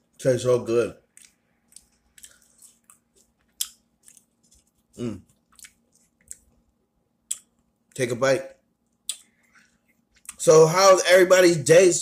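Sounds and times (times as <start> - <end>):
wet chewing and mouth clicks: 1.0 - 8.0, 8.8 - 10.4.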